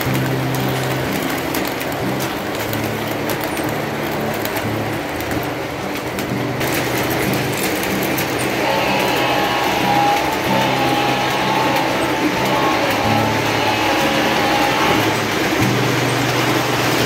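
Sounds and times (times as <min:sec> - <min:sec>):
model train rolling rumble: 0:00.0 - 0:17.0
wheels clicking on track: 0:00.0 - 0:17.0.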